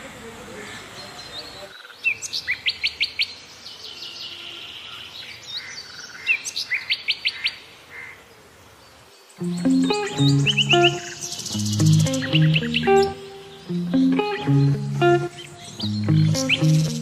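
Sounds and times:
bird chirping: 9.2s - 17.0s
guitar music: 9.4s - 17.0s.

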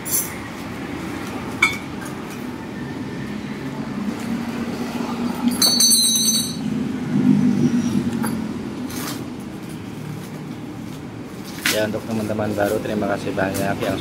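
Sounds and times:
handling noise of bicycle parts: 5.4s - 6.7s, 8.2s - 14.0s.

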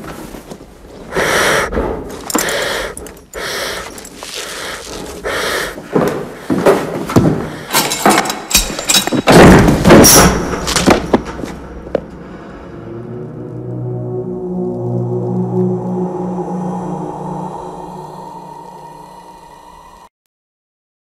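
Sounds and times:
trapdoor bang and clatter: 8.1s - 11.8s.

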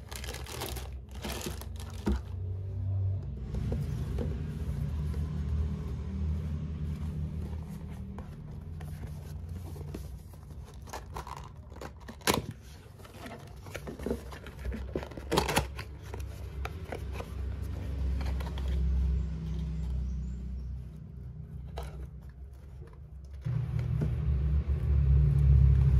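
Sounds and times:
cardboard box tearing: 0.0s - 2.2s
steady low rumble: 23.4s - 25.9s.

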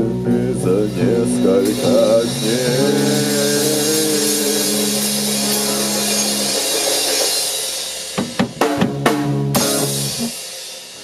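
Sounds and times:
rock band final chord: 0.0s - 11.0s
cymbals ringing: 1.6s - 8.2s
quick drum hits: 1.6s - 11.0s.

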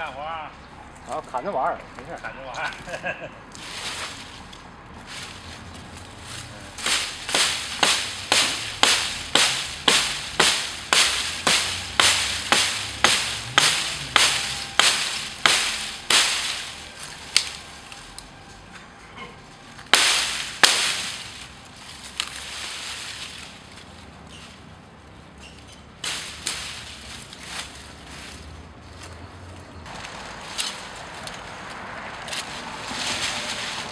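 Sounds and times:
blade chopping branch: 6.4s - 17.7s, 19.8s - 23.6s, 26.0s - 27.7s, 30.0s - 31.5s, 32.2s - 33.9s.

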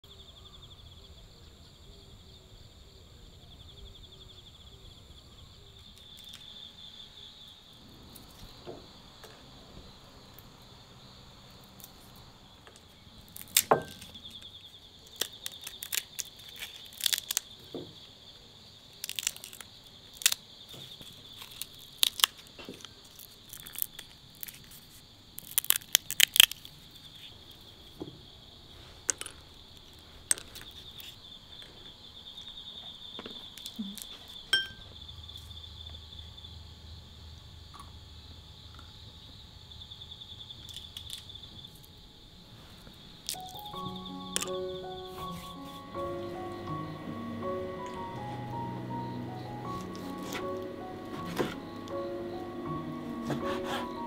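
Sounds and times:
insects chirring: 0.0s - 54.0s
dry brittle material cracking: 6.0s - 6.5s, 12.6s - 17.9s, 18.9s - 27.4s, 43.2s - 45.7s.

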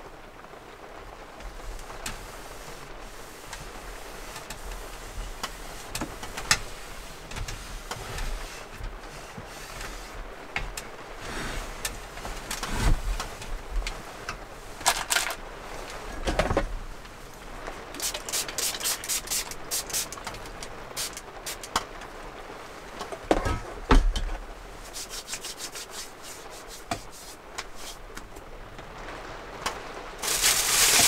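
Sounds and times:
rain hiss: 0.0s - 31.0s
hands rubbing paper tissue: 18.0s - 20.2s, 24.8s - 28.0s, 30.2s - 31.0s.

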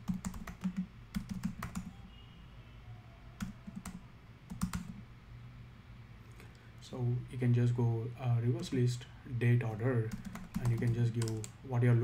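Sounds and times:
computer keyboard typing: 0.0s - 1.9s, 3.4s - 5.0s, 10.1s - 11.6s.

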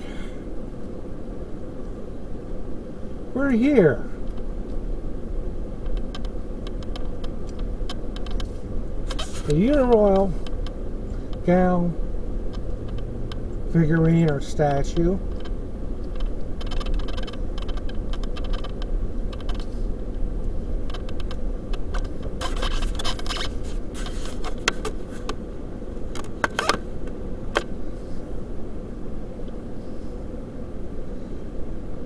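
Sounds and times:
vehicle low rumble: 2.5s - 30.3s
crackles and sharp clicks: 5.8s - 11.6s, 12.4s - 25.4s, 26.0s - 27.8s.

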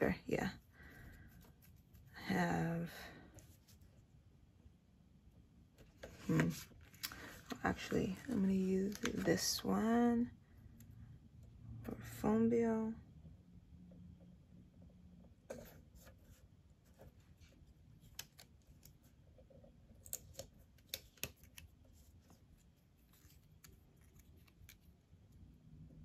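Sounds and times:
paper crinkling and ticking: 19.9s - 25.4s.

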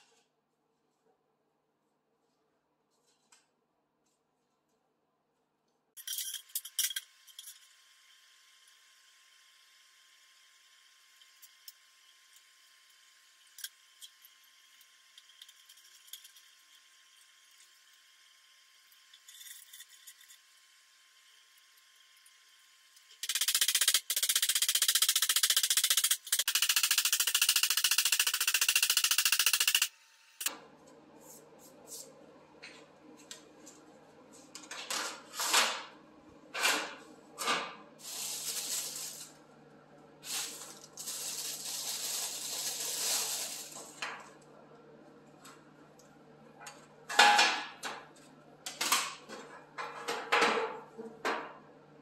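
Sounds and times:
plastic bag crinkling: 38.0s - 39.4s, 40.2s - 44.0s.

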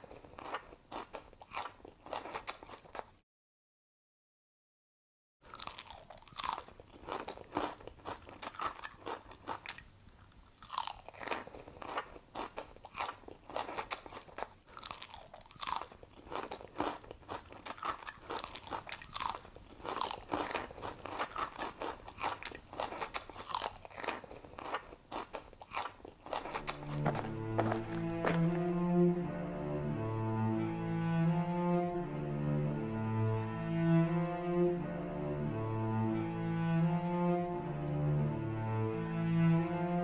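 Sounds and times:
animal chewing plants: 25.7s - 28.7s.

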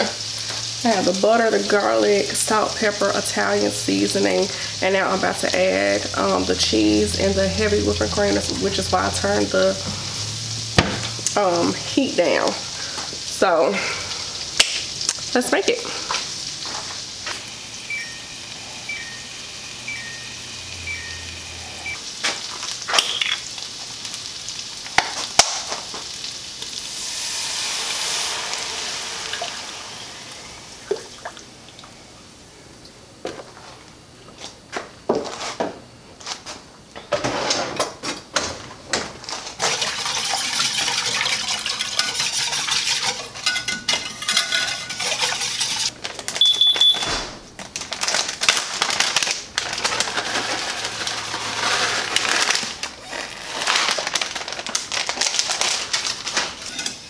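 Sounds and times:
sauce sizzling in a pan: 0.0s - 32.4s, 39.5s - 45.9s
utensils clinking and knocking: 39.6s - 45.9s
liquid being stirred: 39.6s - 46.0s.

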